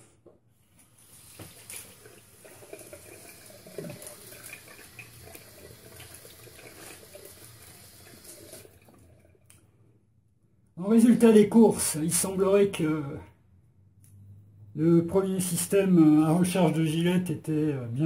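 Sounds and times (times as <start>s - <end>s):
tap water running into sink: 0.8s - 9.5s
water splashes: 1.0s - 9.3s.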